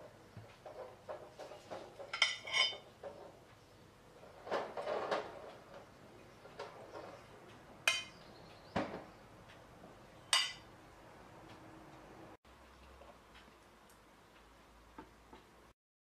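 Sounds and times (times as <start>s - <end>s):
spoon clinking against bowl: 7.9s - 8.2s.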